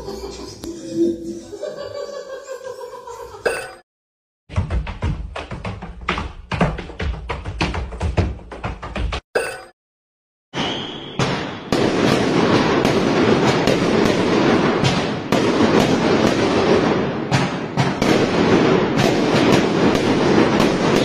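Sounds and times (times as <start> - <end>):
firework whistle: 10.6 - 11.7
fireworks crackling and popping: 11.4 - 21.0.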